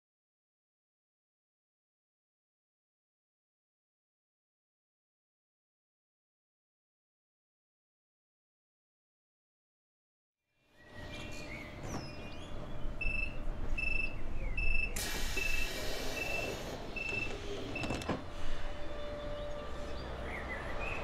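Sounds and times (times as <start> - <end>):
train door warning beeps: 13.0 - 19.8
train doors shutting knock: 14.9 - 18.5
air hiss: 15.0 - 16.9.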